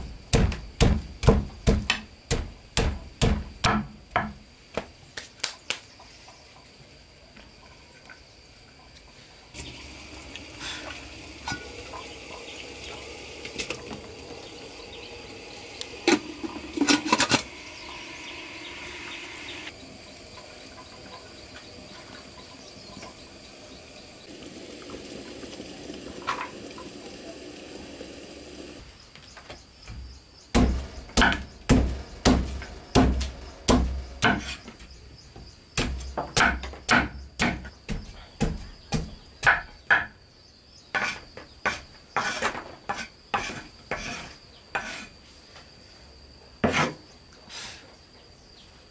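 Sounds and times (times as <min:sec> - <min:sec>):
machete chopping on wooden board: 0:00.3 - 0:04.4, 0:30.6 - 0:34.6, 0:35.8 - 0:40.1.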